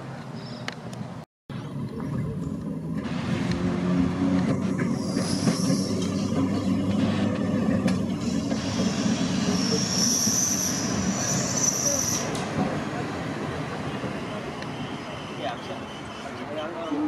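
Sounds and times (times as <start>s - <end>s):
tram humming: 1.5s - 17.0s
steel wheels rumbling on rail: 2.4s - 17.0s
wheel squeal: 4.4s - 12.4s.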